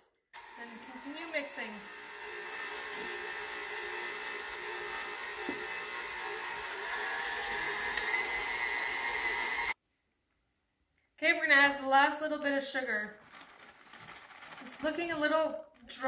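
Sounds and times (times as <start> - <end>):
stand mixer motor running: 0.4 - 9.8.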